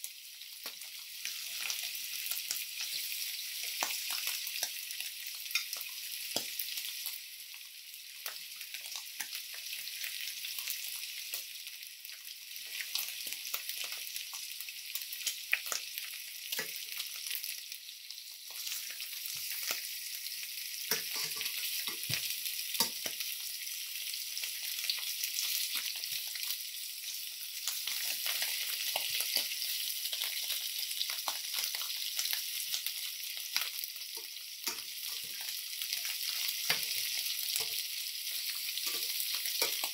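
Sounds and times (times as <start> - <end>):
meat sizzling in a pan: 0.0 - 39.9
tongs knocking on pan: 20.9 - 22.2.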